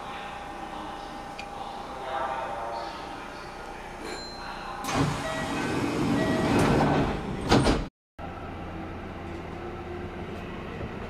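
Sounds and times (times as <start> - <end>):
train doors opening with air rush: 4.8 - 7.9.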